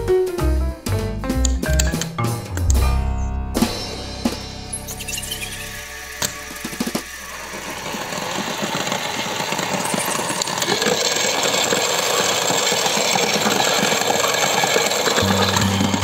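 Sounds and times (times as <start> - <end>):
toy washing machine motor whirring: 5.2 - 16.0.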